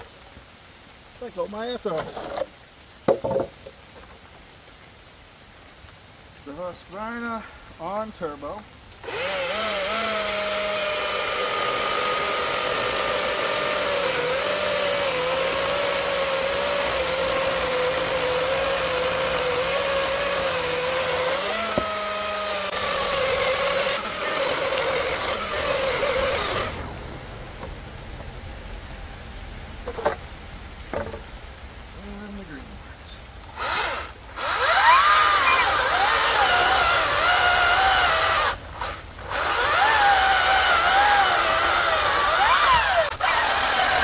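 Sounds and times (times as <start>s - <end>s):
sharp knocks: 3.1s - 3.7s
chainsaw cutting log: 9.0s - 27.0s, 33.5s - 44.0s.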